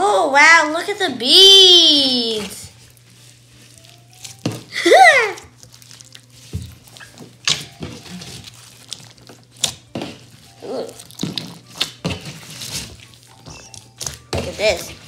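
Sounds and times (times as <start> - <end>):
slime squelching and clicking: 3.6 - 15.0.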